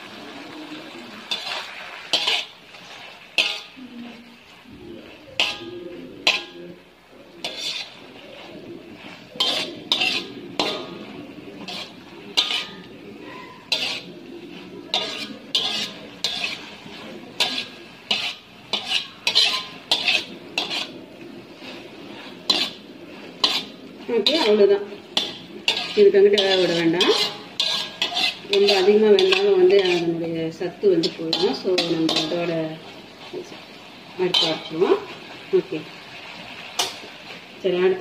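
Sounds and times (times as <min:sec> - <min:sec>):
light sizzle: 0:00.0 - 0:38.0
metal spatula scraping a wok: 0:00.0 - 0:38.0.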